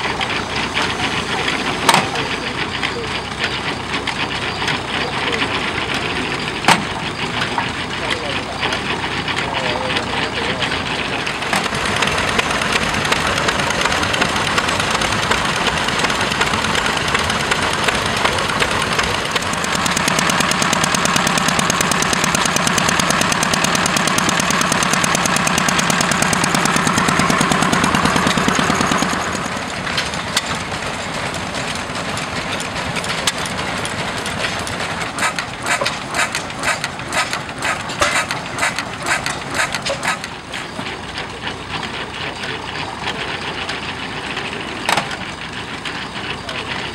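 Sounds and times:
engine with fast even beat: 0.0 - 46.9
hit-and-miss engine running: 0.0 - 46.9
sharp engine firing knocks: 6.0 - 8.8, 11.3 - 41.0.

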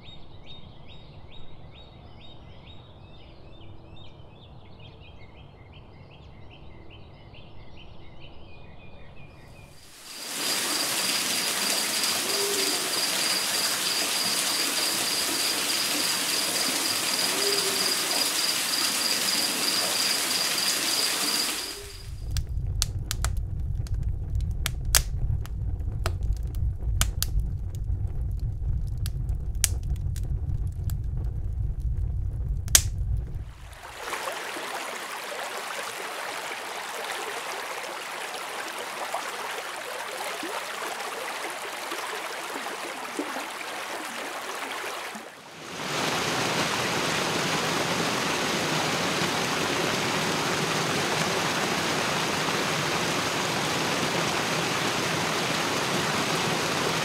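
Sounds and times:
wood fire crackling: 9.8 - 17.4, 18.0 - 33.9
churning water rushing: 9.8 - 22.2, 33.4 - 57.0
water hissing: 9.8 - 22.4, 33.5 - 57.0.

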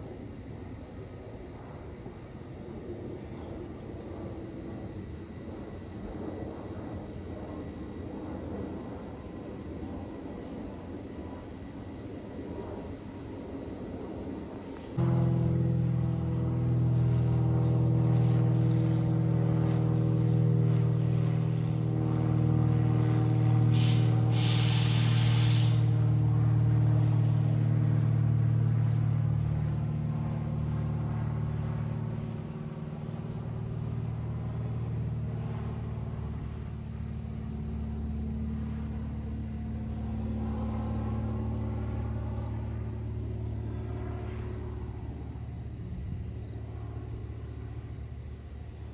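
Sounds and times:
propeller plane engine drone: 0.0 - 48.9
brief hiss: 23.7 - 25.9.

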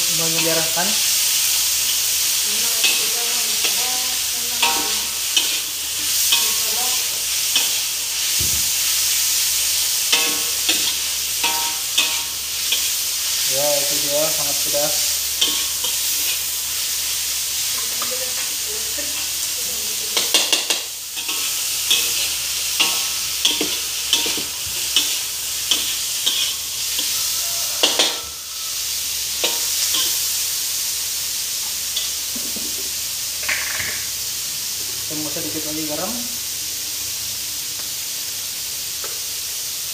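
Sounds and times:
spatula scraping wok: 0.0 - 30.8
food sizzling in oil: 0.0 - 39.9.

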